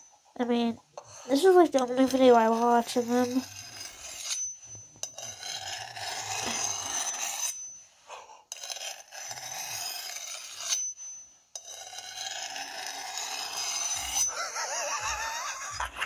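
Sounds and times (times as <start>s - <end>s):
knife blades scraping together: 1.8s - 7.8s, 8.5s - 15.1s.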